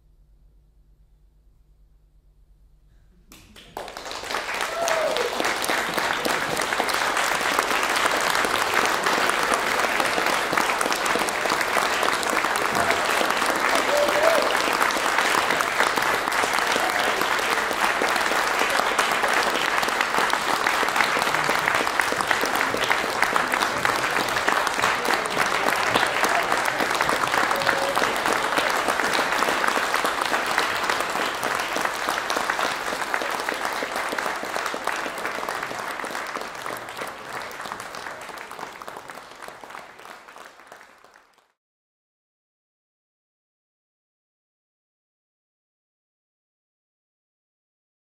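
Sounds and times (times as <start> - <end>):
audience applauding: 3.3 - 41.6.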